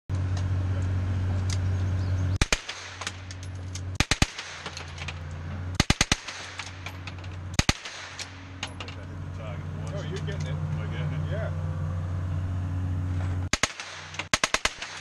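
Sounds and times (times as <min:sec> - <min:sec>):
steady low hum: 0:00.1 - 0:15.0
automatic gunfire bursts: 0:04.0 - 0:04.8, 0:05.8 - 0:06.6, 0:13.5 - 0:15.0.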